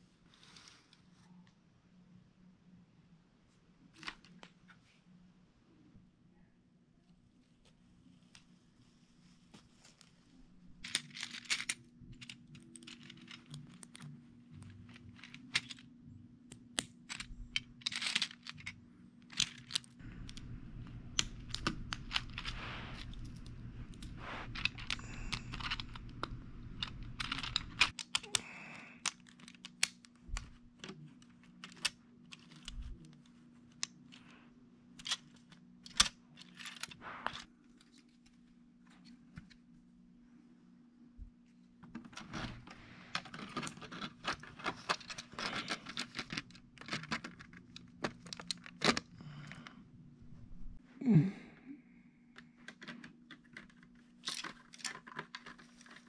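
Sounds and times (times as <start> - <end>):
plastic bricks clicking and clattering: 10.8 - 15.9, 16.8 - 28.4, 29.0 - 34.2, 35.0 - 37.4, 41.8 - 49.6, 52.4 - 56.0
rustling: 17.2 - 28.0, 29.2 - 39.7.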